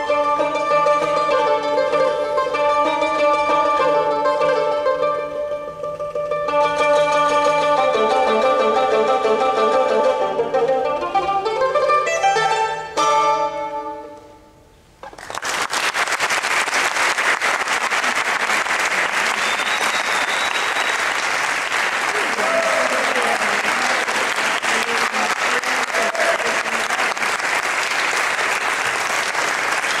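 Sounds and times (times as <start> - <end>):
classical guitar: 0.0 - 14.4
audience applause: 15.0 - 30.0.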